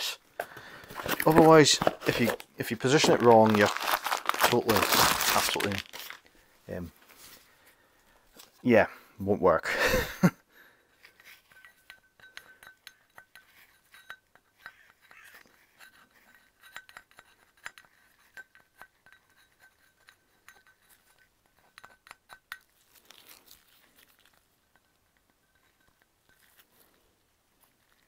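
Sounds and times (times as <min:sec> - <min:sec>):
light clicks and clinks of metal: 0:11.0 - 0:28.0.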